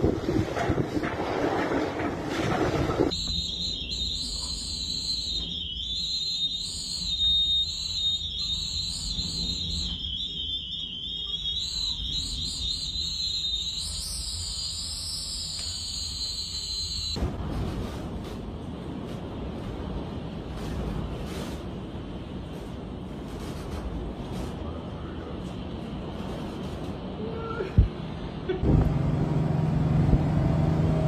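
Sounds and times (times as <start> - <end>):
wind rumbling on microphone: 0.0 - 3.2
high thin wind whistle: 3.1 - 17.2.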